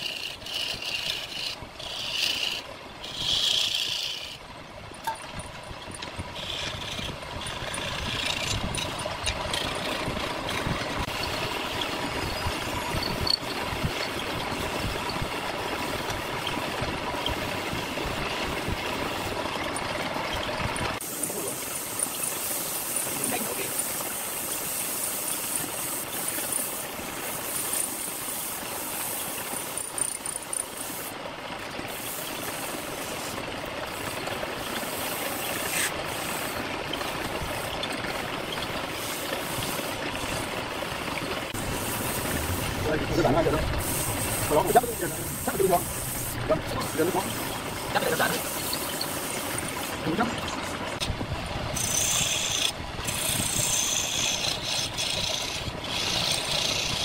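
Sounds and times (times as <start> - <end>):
sandpaper hissing on turning wood: 0.0 - 4.4, 6.4 - 8.5, 21.0 - 31.2, 31.9 - 36.6, 41.5 - 50.1, 51.8 - 57.0
wood lathe motor humming: 0.0 - 4.4, 5.9 - 20.4, 51.7 - 57.0
hand tool cutting spinning wood: 0.0 - 31.2, 31.9 - 57.0.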